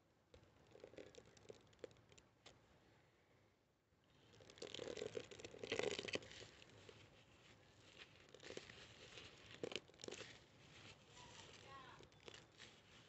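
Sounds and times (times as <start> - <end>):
wet sponge squelching soapy paste: 4.2 - 13.0.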